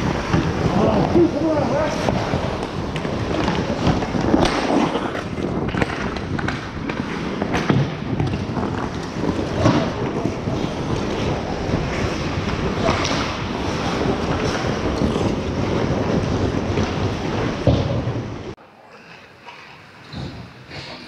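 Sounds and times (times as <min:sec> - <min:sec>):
hockey sticks and puck clacking: 0:00.0 - 0:18.2
skates scraping on ice: 0:00.0 - 0:18.6.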